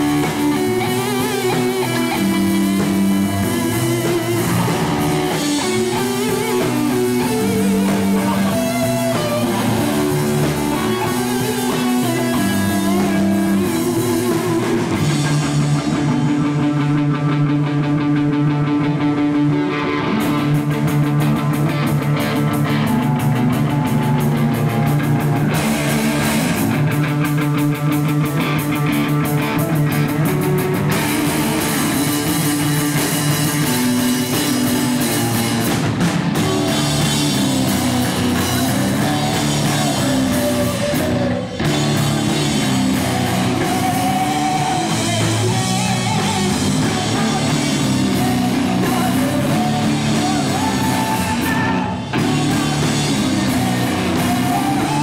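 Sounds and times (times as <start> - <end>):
distorted electric guitar: 0.0 - 55.0
drum kit: 0.0 - 55.0
electric bass: 0.0 - 55.0.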